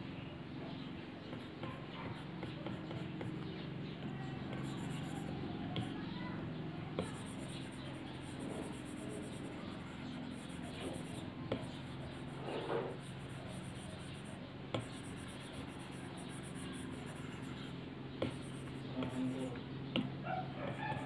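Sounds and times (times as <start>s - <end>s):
steady low hum: 0.0s - 21.0s
stylus stroking on glass screen: 4.4s - 6.2s, 7.0s - 19.6s.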